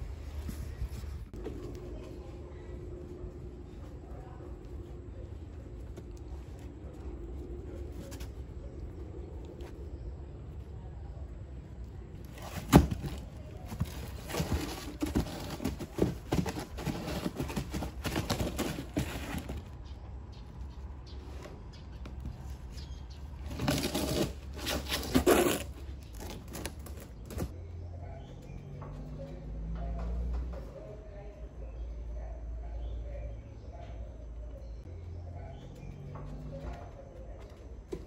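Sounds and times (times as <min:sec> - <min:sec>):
trash rustling and crinkling: 0:12.2 - 0:19.9, 0:22.5 - 0:27.6.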